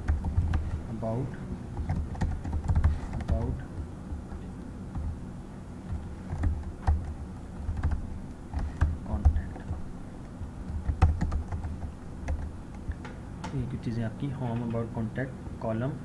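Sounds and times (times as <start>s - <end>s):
typing on computer keyboard: 0.0s - 0.7s, 1.8s - 3.5s, 5.9s - 9.8s, 10.7s - 12.5s.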